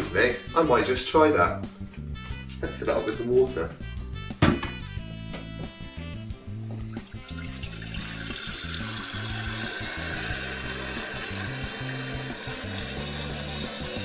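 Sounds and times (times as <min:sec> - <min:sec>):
tap water filling a kettle: 0:06.9 - 0:14.0.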